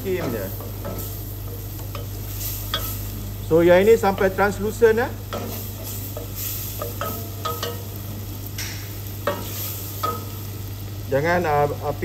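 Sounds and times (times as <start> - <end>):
onion sizzling in butter: 0.0 - 12.0.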